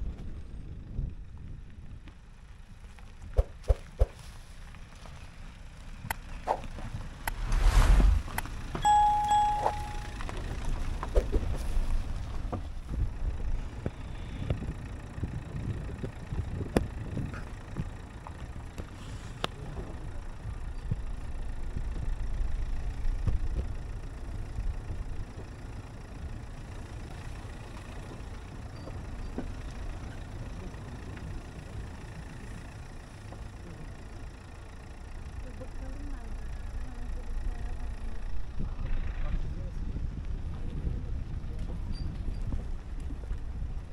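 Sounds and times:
car driving on bumpy dirt track: 0.0 - 43.9
bell-like ding: 8.8 - 10.2.

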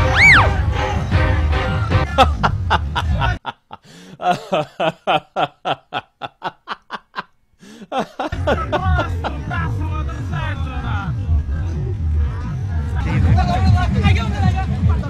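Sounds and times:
snickering laugh: 2.0 - 9.6
crowd noise: 8.3 - 15.0
music with heavy bass: 8.4 - 15.0.

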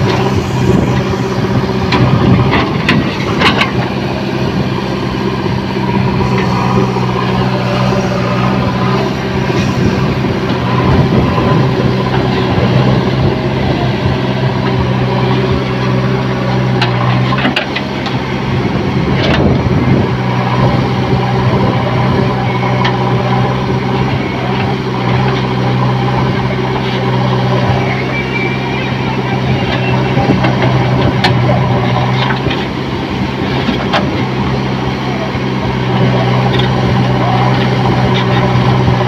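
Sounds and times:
backhoe digging stony soil: 0.0 - 39.0
diesel engine running: 0.0 - 39.0.

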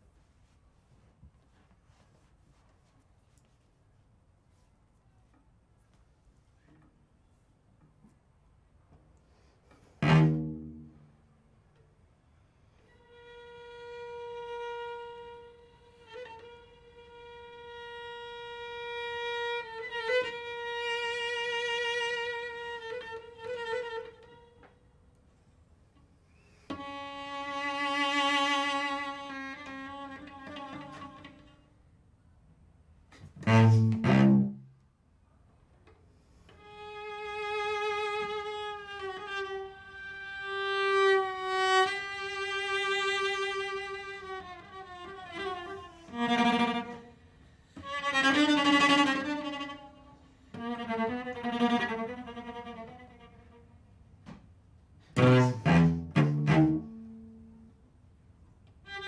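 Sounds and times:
bowed cello notes: 9.7 - 11.4, 26.7 - 31.6, 33.2 - 34.8, 36.6 - 53.6, 55.1 - 57.7.

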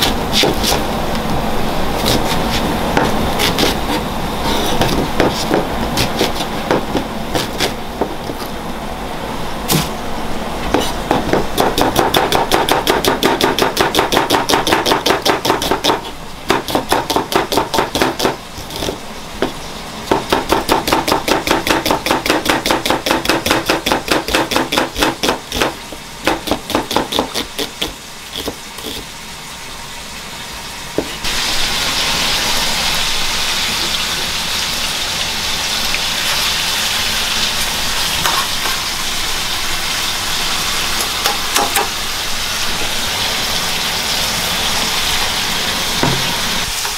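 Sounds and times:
knife slicing onion on board: 0.0 - 0.9, 2.0 - 8.6, 9.7 - 10.0, 10.6 - 29.1, 41.0 - 41.9
onion and bacon frying in oil: 0.0 - 46.9.

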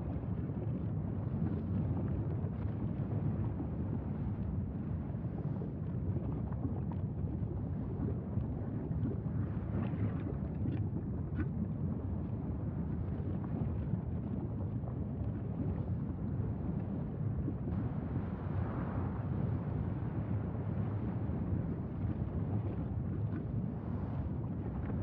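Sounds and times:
low rumble of lava vent: 0.0 - 25.0
wind on microphone: 0.0 - 25.0.

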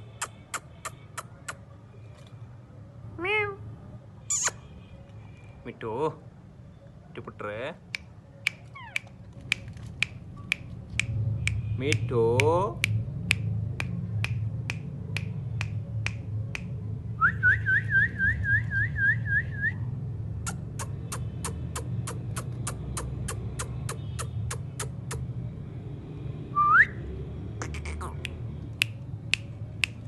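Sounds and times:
parakeet clicks: 7.8 - 16.7.

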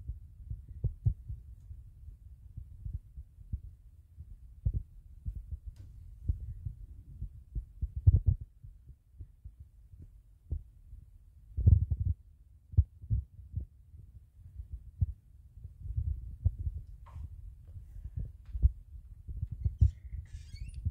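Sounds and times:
muffled footsteps: 15.9 - 19.9.

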